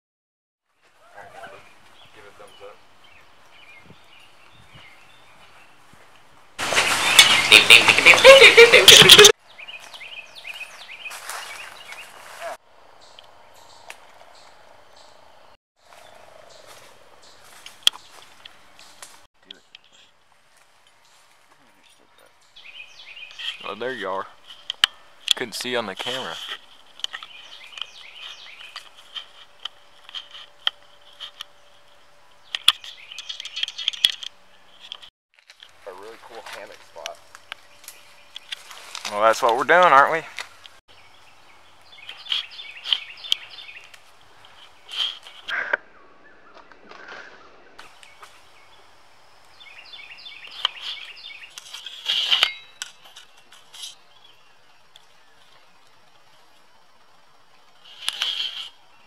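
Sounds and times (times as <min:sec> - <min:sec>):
rustling leaves and twigs: 0:00.6 - 0:15.0, 0:15.8 - 0:59.0
high falling chirps: 0:06.6 - 0:12.2.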